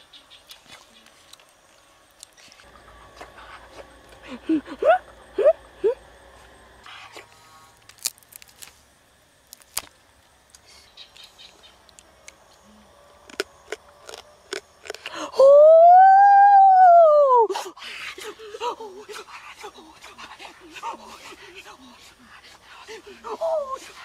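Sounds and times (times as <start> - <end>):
wet chewing and lip-smacking: 13.3 - 15.2.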